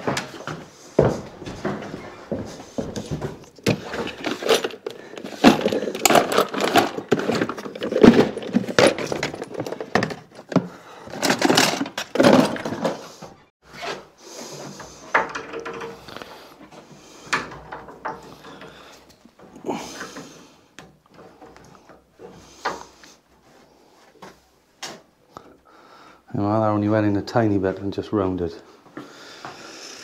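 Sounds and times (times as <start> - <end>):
pliers clinking and scraping: 3.4 - 13.0.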